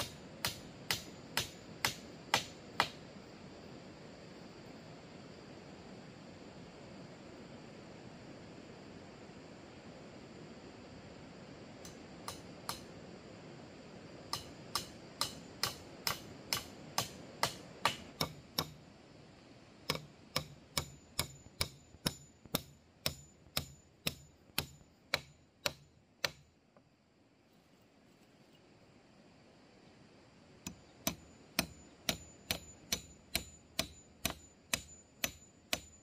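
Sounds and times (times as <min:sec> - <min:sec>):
hand tool strikes: 0:00.0 - 0:03.0, 0:11.8 - 0:12.9, 0:14.3 - 0:18.8, 0:19.9 - 0:26.5, 0:30.7 - 0:36.0.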